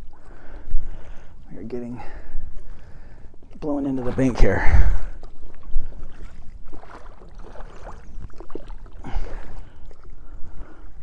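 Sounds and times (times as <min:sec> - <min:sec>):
oars splashing through water: 0:00.0 - 0:11.0
wind rumbling on microphone: 0:00.0 - 0:11.0.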